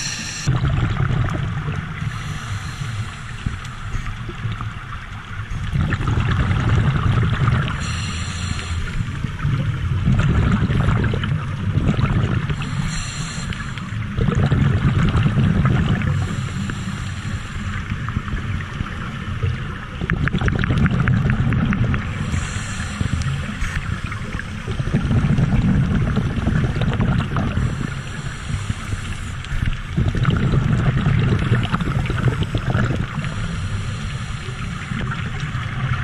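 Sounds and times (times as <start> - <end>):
scuba regulator breathing underwater: 0.0 - 0.5, 2.0 - 4.1, 7.7 - 9.2, 12.5 - 14.0, 15.9 - 17.9, 22.1 - 25.0, 27.4 - 29.5, 30.4 - 35.1
exhale bubbling rumble: 0.0 - 36.0.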